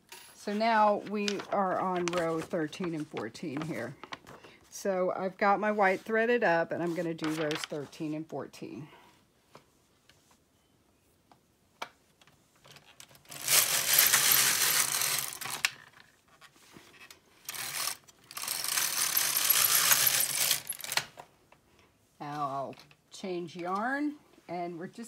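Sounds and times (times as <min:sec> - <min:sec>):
knitting machine carriage clatter: 0:13.3 - 0:15.7, 0:17.5 - 0:21.0.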